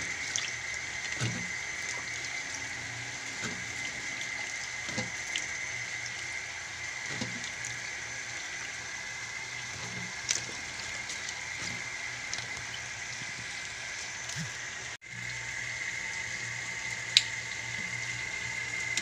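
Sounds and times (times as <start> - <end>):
tap water running into sink: 0.0 - 19.0
splashes and knocks: 0.2 - 2.2, 4.7 - 5.5, 7.0 - 7.6.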